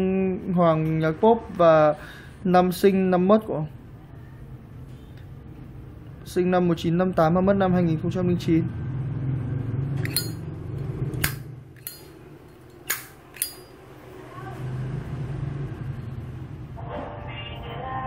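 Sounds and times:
metal lighter clicking and clinking: 10.0s - 10.4s, 11.2s - 13.8s.

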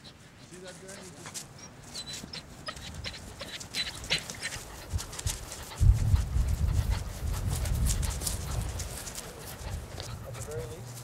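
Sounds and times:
dog breathing and running: 0.0s - 11.0s
low rumble of thuds: 5.8s - 8.7s.

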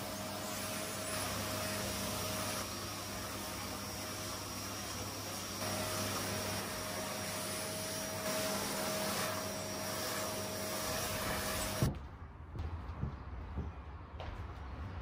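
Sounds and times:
vacuum cleaner running: 0.0s - 11.9s.

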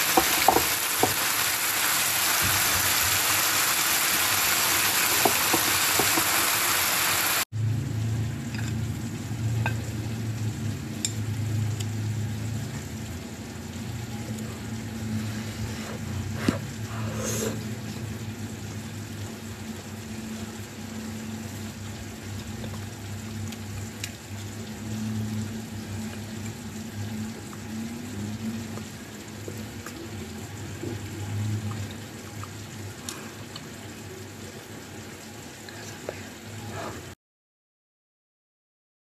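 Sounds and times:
low hum: 7.6s - 16.2s.

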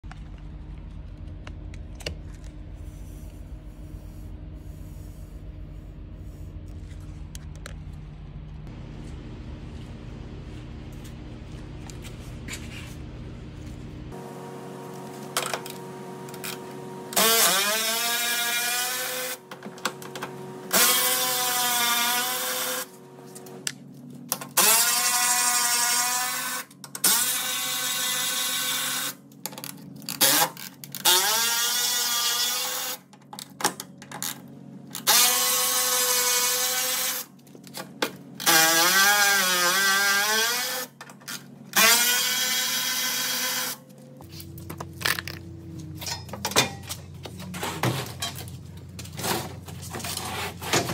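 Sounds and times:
cordless electric ratchet whirring: 20.7s - 22.9s, 34.9s - 37.3s, 38.4s - 43.8s.

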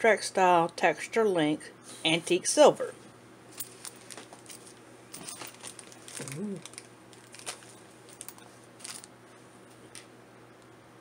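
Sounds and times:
plastic bag crinkling: 3.6s - 9.1s
murmured voice: 6.2s - 6.6s.

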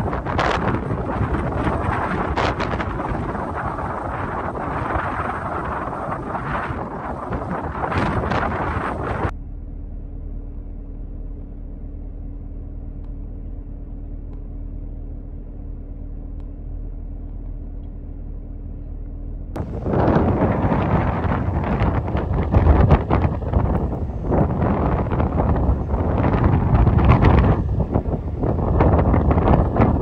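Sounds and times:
wind buffeting microphone: 0.0s - 9.3s, 19.5s - 30.0s
car cabin driving drone: 0.0s - 30.0s.

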